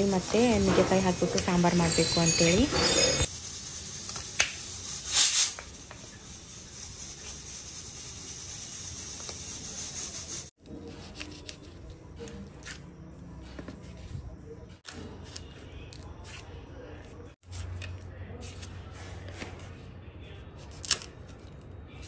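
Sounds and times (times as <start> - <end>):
steady hiss: 3.2 - 10.5.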